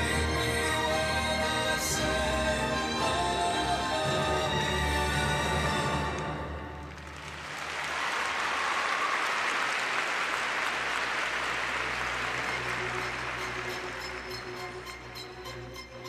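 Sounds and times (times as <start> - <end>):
skating music: 0.0 - 7.2, 11.4 - 16.0
audience applauding: 6.0 - 14.8.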